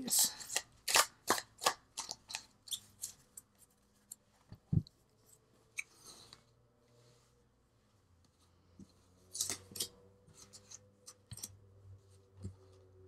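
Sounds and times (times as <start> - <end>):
cards being shuffled: 9.3 - 11.5.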